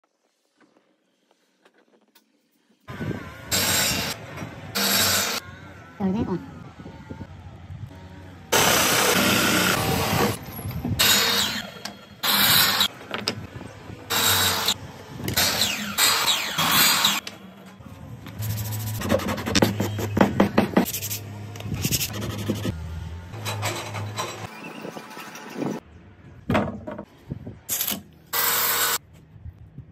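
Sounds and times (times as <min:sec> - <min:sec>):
miter saw cutting: 0:08.5 - 0:10.4, 0:11.0 - 0:12.9, 0:14.1 - 0:14.8, 0:15.4 - 0:17.2
drill boring into wood: 0:08.6 - 0:10.4.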